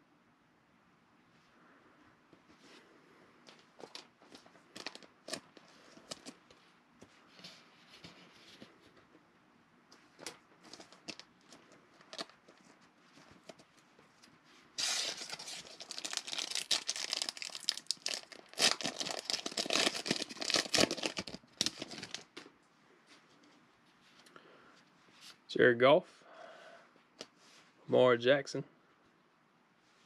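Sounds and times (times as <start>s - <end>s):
foil pack crinkling: 3.8s - 6.4s, 14.8s - 22.5s.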